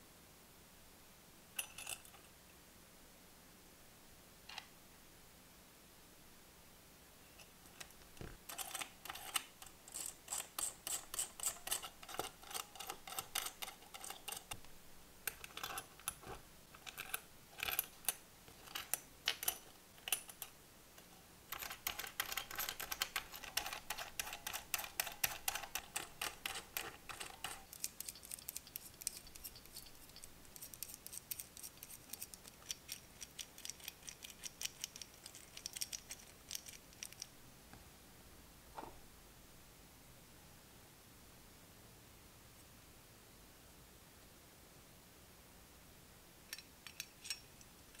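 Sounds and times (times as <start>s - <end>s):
metal valve parts clicking: 8.5s - 14.6s, 15.3s - 20.5s, 21.5s - 37.3s, 46.5s - 48.0s.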